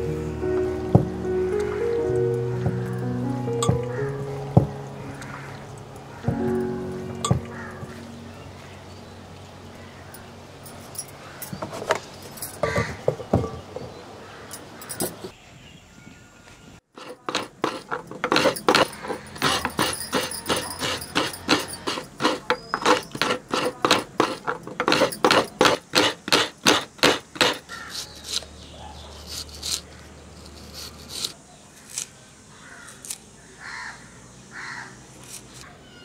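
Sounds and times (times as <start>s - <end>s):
coconut scraping on metal blade: 17.0s - 28.5s, 29.1s - 32.1s.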